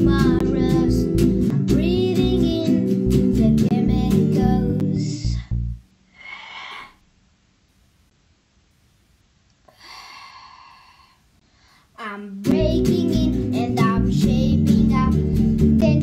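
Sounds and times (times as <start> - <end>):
person singing: 0.0 - 5.4, 12.0 - 16.0
guitar: 0.0 - 5.8, 12.2 - 16.0
person sighing: 5.1 - 7.0, 9.7 - 11.9.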